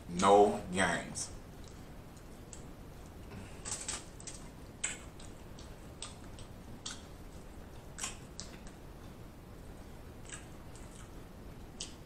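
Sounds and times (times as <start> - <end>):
crawfish shells cracking: 3.6 - 7.1.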